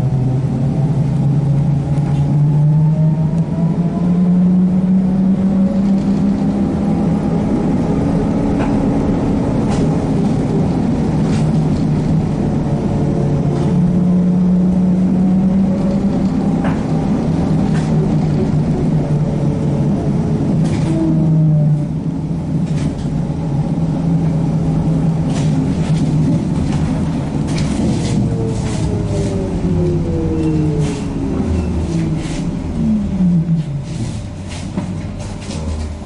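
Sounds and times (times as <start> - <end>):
rising and falling whine: 0.0 - 11.2, 11.8 - 34.5
trolleybus running gear hum: 0.0 - 36.0
body clicks and rattles: 25.2 - 28.9.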